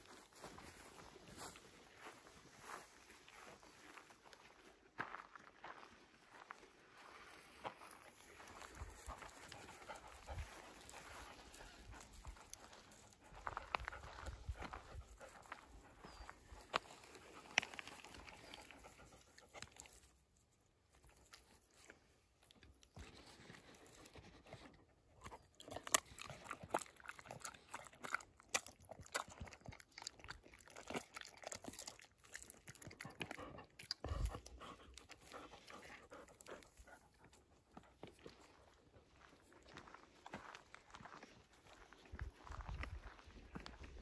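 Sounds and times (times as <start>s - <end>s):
dog crunching a treat: 21.0s - 36.9s.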